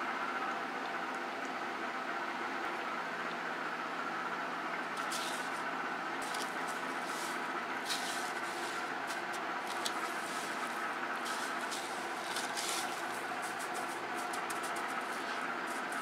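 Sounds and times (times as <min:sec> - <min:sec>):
steady background hum: 0:00.0 - 0:16.0
breadcrumbs rustling and crunching: 0:06.2 - 0:16.0.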